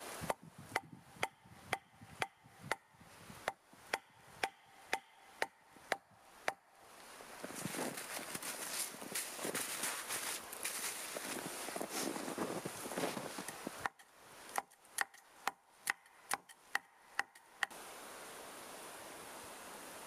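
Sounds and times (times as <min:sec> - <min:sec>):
stake hammered into ground: 0:00.2 - 0:06.6
rustling: 0:06.9 - 0:13.8.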